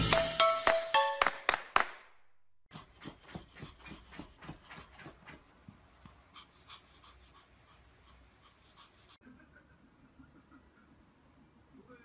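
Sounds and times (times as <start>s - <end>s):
dog paws scratching fabric cushion: 2.7s - 6.2s.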